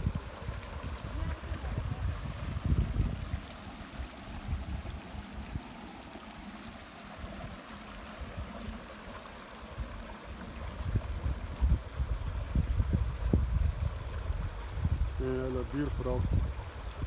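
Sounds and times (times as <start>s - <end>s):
low rumbling on microphone: 0.0s - 5.9s, 9.7s - 17.0s
creek rushing over rocks: 0.0s - 17.0s.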